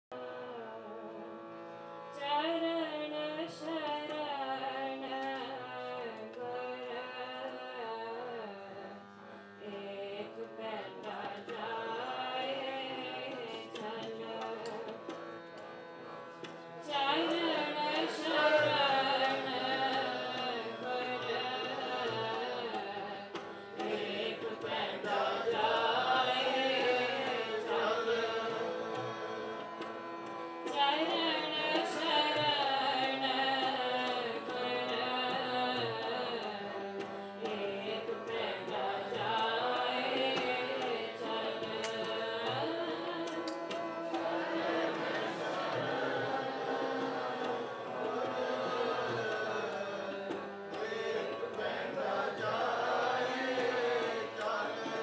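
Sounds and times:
harmonium: 0:00.1 - 0:55.0
tabla: 0:00.1 - 0:55.0
woman singing: 0:02.1 - 0:09.0, 0:09.6 - 0:15.1, 0:16.8 - 0:29.2, 0:30.6 - 0:45.8.

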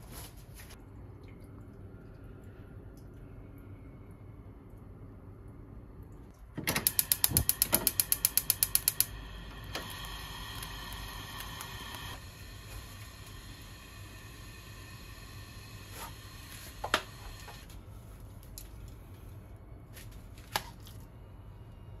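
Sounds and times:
gas flame burning: 0:06.6 - 0:17.7
gas igniter clicking rapidly: 0:06.7 - 0:09.1.

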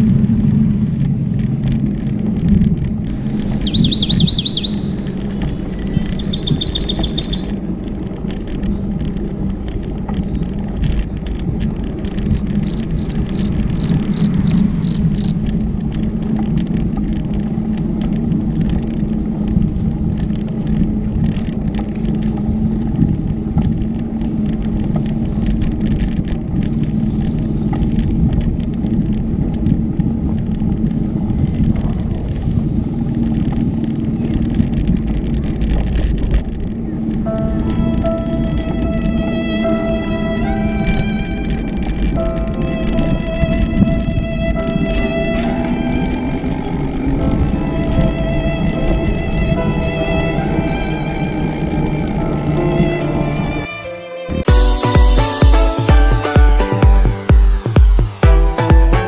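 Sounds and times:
bicycle wind and tyre rumble: 0:00.0 - 0:53.8
high evenly spaced chirps: 0:03.1 - 0:07.6, 0:12.3 - 0:15.4, 0:54.5 - 0:59.0.

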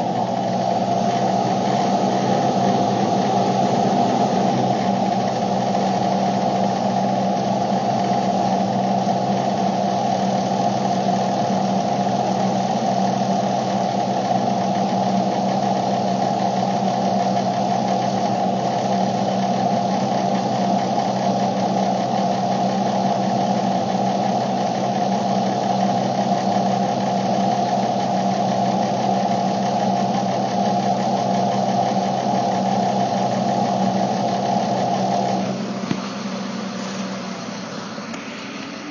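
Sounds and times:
car cabin hum: 0:00.0 - 0:13.8, 0:32.0 - 0:38.9.

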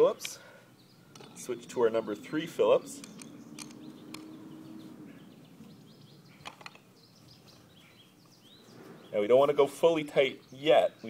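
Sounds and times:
birds chirping: 0:00.0 - 0:11.0
screwdriver clicks: 0:03.0 - 0:04.3.

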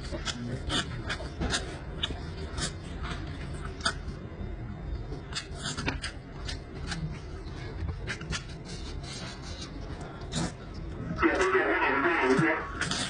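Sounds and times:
chewing and lip-smacking: 0:00.0 - 0:04.1
low steady hum: 0:00.0 - 0:13.0.

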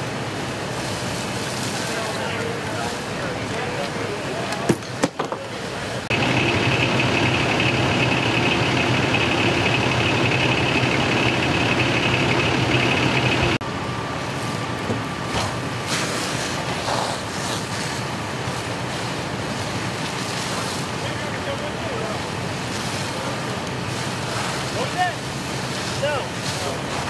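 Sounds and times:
fire engine running: 0:00.0 - 0:27.0
high whine: 0:06.0 - 0:15.9.

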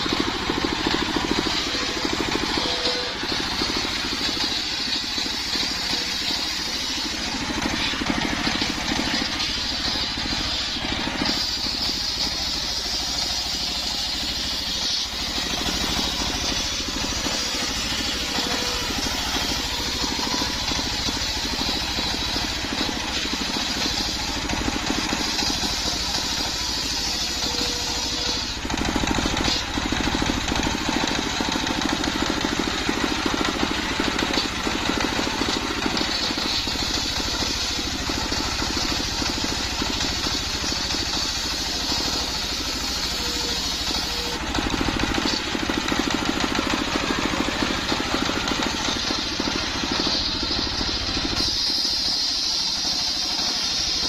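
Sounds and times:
circular saw cutting whine: 0:00.0 - 0:54.0
stationary engine running: 0:00.0 - 0:54.0.

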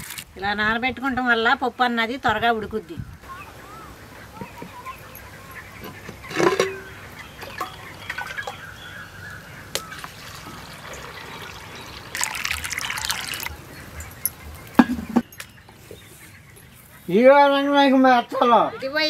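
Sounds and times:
water pouring and splashing: 0:06.3 - 0:08.6, 0:09.7 - 0:13.6
light metal clinks: 0:13.8 - 0:15.6.

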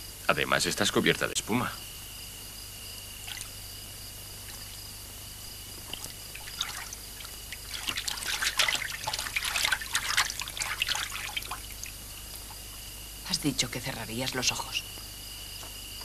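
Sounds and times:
bathwater splashing: 0:03.2 - 0:03.6, 0:04.4 - 0:04.9, 0:05.6 - 0:12.8
water trickling into tub: 0:03.2 - 0:03.7, 0:04.3 - 0:12.9.

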